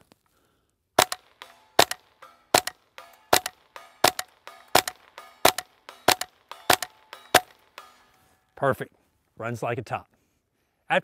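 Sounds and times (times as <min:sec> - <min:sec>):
suppressed rifle shots: 0:01.0 - 0:08.1
bullet ringing on steel target: 0:01.0 - 0:08.5.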